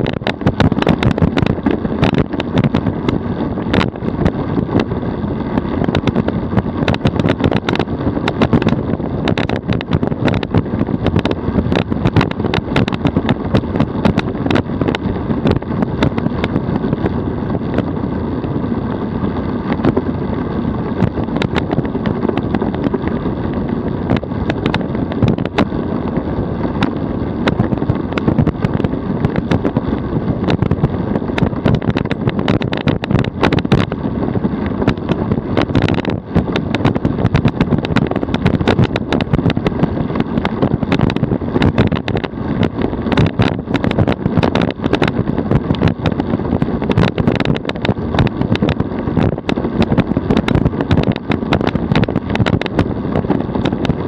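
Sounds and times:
tyres rumbling on road: 0:00.0 - 0:54.0
wind on microphone: 0:00.0 - 0:54.0
small rattles and knocks: 0:21.0 - 0:25.8, 0:34.6 - 0:54.0.

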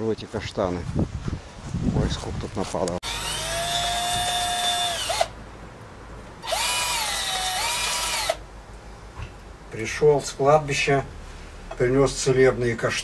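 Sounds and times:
cordless drill whining: 0:03.0 - 0:05.4, 0:06.4 - 0:08.4.

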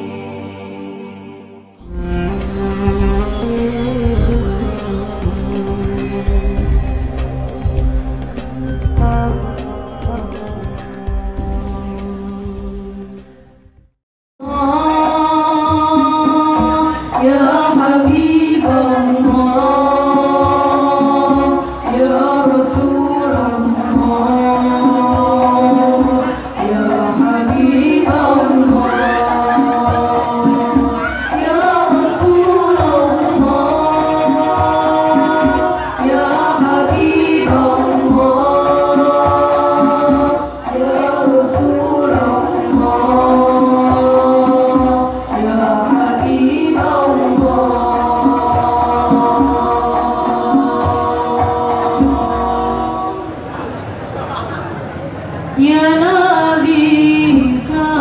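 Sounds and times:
young women singing in unison: 0:00.0 - 0:07.7, 0:14.4 - 0:53.9, 0:55.6 - 0:58.0
frame drum strikes: 0:01.9 - 0:09.3.

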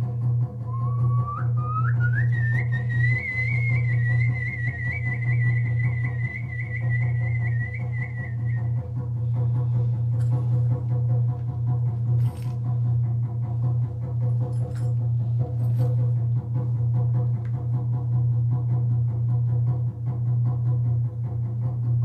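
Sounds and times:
steady low hum: 0:00.0 - 0:22.0
person whistling high note: 0:00.7 - 0:08.9.

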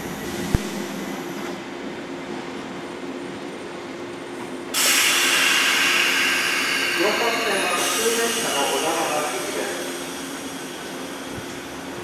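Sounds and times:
electric train humming: 0:00.0 - 0:12.0
loud hiss of air: 0:04.7 - 0:12.0.

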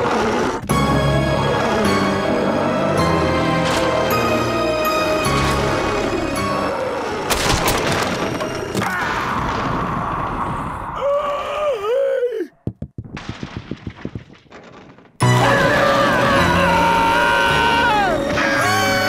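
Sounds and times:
loud crash through wooden floor: 0:12.7 - 0:15.4
rumbling noise: 0:13.0 - 0:15.6
cartoon music: 0:15.2 - 0:19.0.

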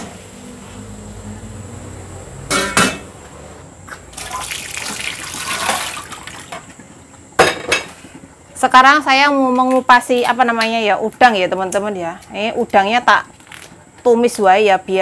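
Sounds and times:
kitchenware clattering: 0:02.5 - 0:03.1, 0:07.4 - 0:08.0
water running in sink: 0:04.1 - 0:06.7.

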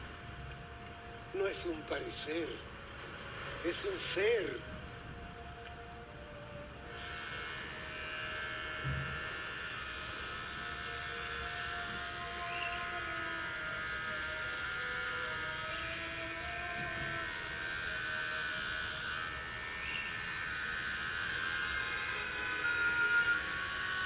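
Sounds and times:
electric hair clippers buzzing: 0:06.8 - 0:24.0.

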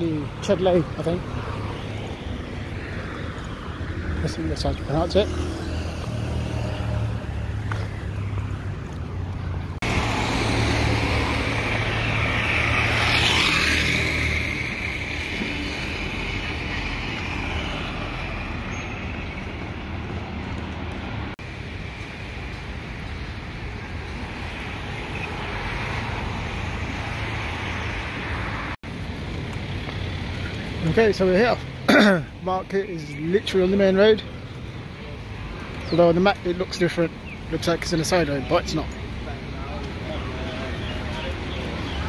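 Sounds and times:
road traffic passing: 0:00.0 - 0:42.0
motor scooter passing: 0:05.0 - 0:18.9.

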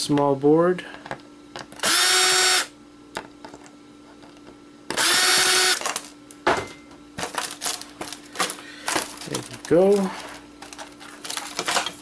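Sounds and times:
cordless drill motor whine: 0:01.8 - 0:02.8, 0:04.9 - 0:06.0
parts clicking and rattling: 0:03.2 - 0:06.2, 0:07.2 - 0:12.0.

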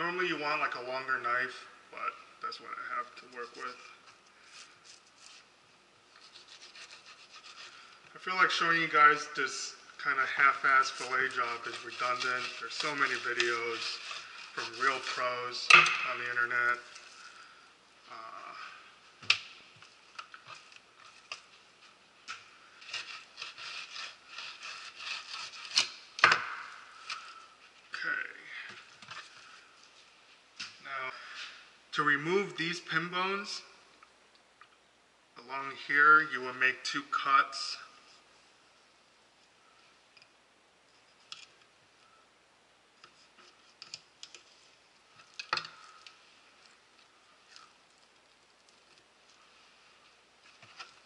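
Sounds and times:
knife scraping fish skin: 0:06.1 - 0:08.0, 0:10.9 - 0:15.2, 0:22.3 - 0:26.0.

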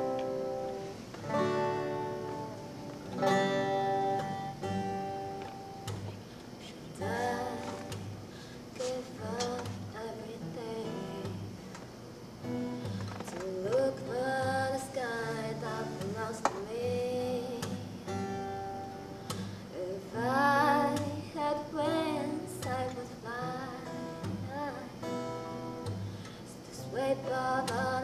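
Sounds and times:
acoustic guitar: 0:00.0 - 0:28.0
woman singing: 0:06.6 - 0:08.2, 0:08.8 - 0:11.6, 0:13.1 - 0:18.1, 0:19.7 - 0:25.2, 0:26.5 - 0:28.0.

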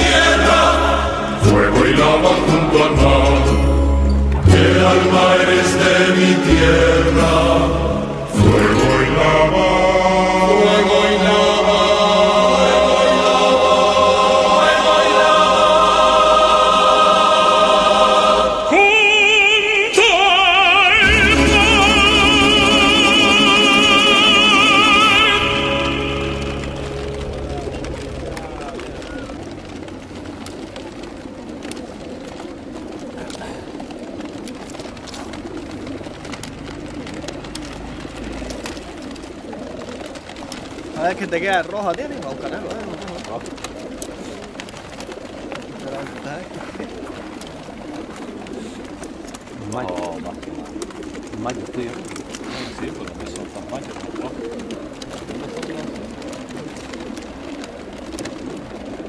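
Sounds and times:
operatic singing voice: 0:00.0 - 0:29.4
held steady chords: 0:00.0 - 0:30.6
pigeons cooing: 0:00.0 - 0:59.0.

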